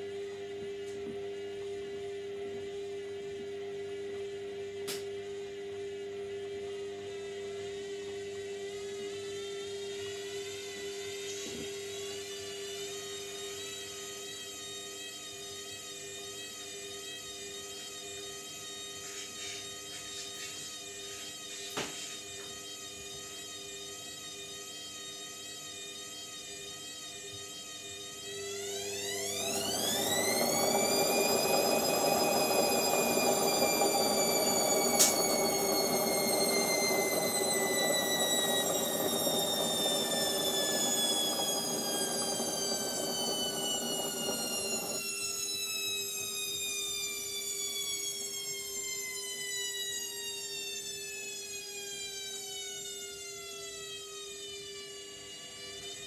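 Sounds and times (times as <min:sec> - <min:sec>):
washing machine motor whine: 0:28.0 - 0:45.4
washing machine drum spinning: 0:29.2 - 0:45.0
click: 0:34.9 - 0:35.7.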